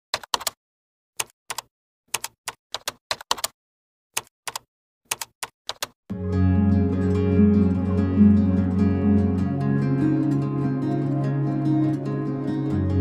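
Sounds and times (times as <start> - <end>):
typing key clacks: 1.2 - 3.5, 4.2 - 6.0
gentle plucked string music: 6.1 - 13.0.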